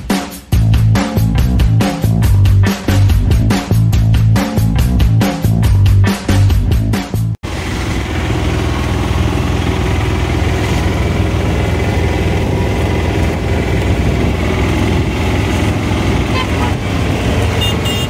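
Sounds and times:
vehicle engine rumble: 4.9s - 18.0s.

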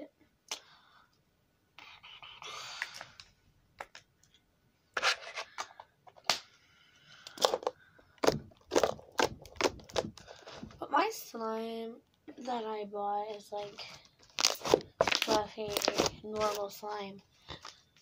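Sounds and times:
heavy thumps: 7.4s - 10.8s.

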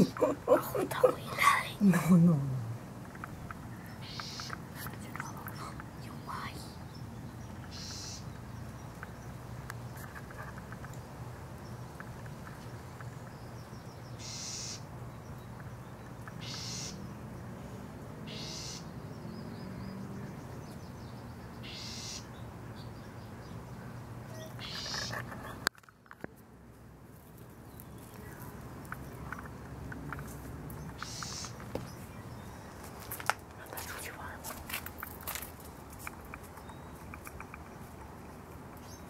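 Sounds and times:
low steady background hum: 0.0s - 19.2s
bird harsh high call: 4.0s - 4.6s, 7.7s - 8.3s, 14.2s - 14.8s, 16.4s - 17.0s, 18.3s - 18.9s, 21.6s - 22.3s, 24.3s - 25.6s, 31.0s - 31.6s.

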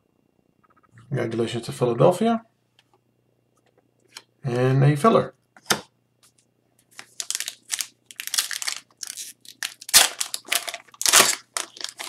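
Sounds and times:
foil wrapper crinkling and tearing: 6.9s - 12.0s.

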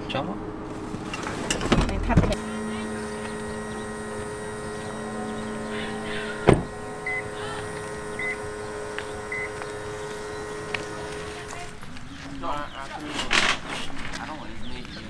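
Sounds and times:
steady low hum: 0.4s - 12.0s
car door slamming: 3.4s - 7.2s.

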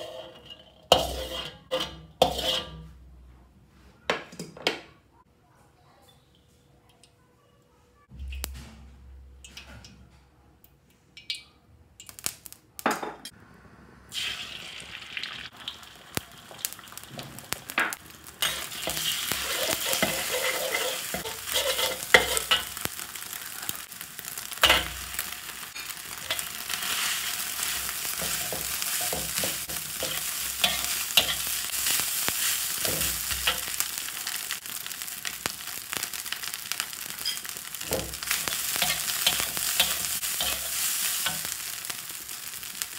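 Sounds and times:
hot oil sizzling: 0.0s - 2.9s, 12.0s - 13.1s, 14.1s - 42.9s
spatula scraping and knocking wok: 0.0s - 3.2s, 16.5s - 42.9s.

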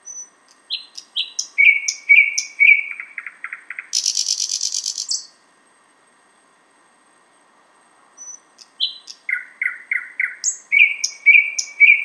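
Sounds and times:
thrush nightingale singing: 0.0s - 5.4s, 8.2s - 12.0s.

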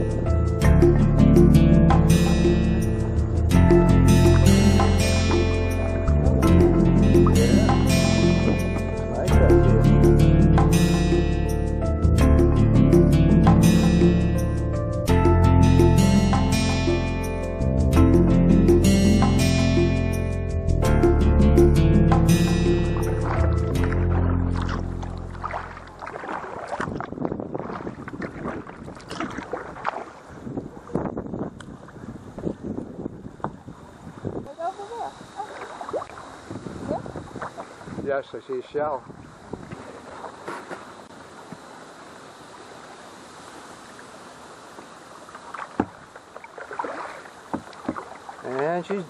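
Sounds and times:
music track: 0.0s - 26.0s
paddle splashes: 22.9s - 32.1s, 35.2s - 42.0s, 43.4s - 49.0s
water lapping around a hull: 22.9s - 49.0s
wind on microphone: 26.2s - 40.4s
hiss of water and air: 39.1s - 45.5s.

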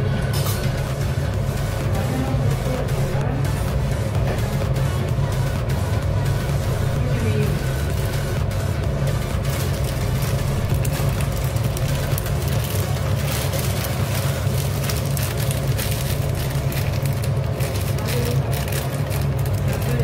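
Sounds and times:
pot of water heating on burner: 8.9s - 20.0s
fine crackling: 9.3s - 20.0s.

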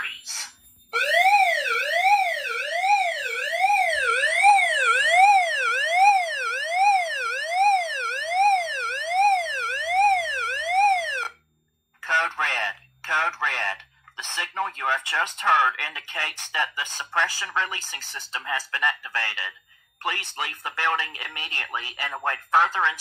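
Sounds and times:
siren-like sweeping alarm tone: 0.9s - 11.4s.

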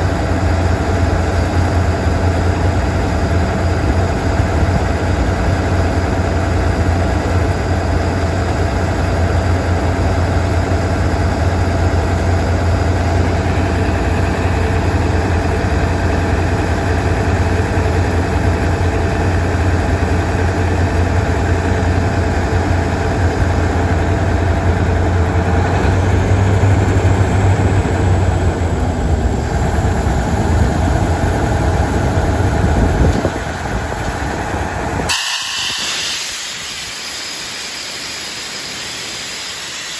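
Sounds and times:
diesel engine humming: 0.0s - 39.9s
air hissing: 35.1s - 39.9s.

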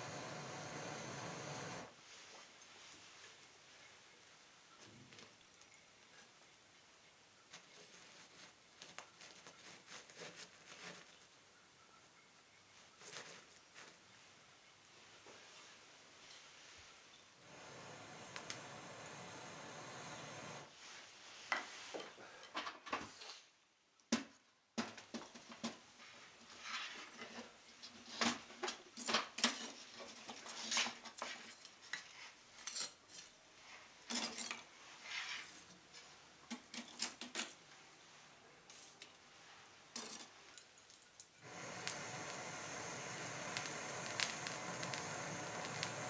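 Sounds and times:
charcoal lumps clinking: 41.4s - 46.0s.

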